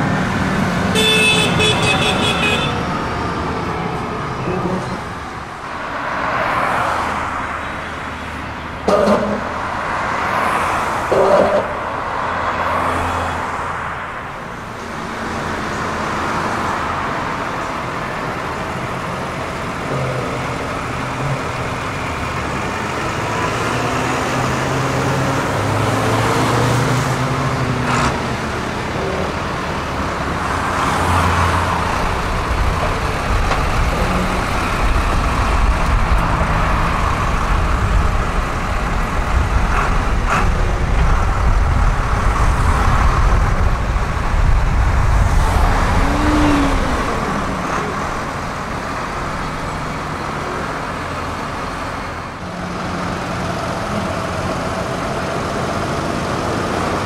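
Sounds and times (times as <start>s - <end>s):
tractor diesel engines passing: 0.0s - 57.0s
tyres on road: 0.0s - 57.0s.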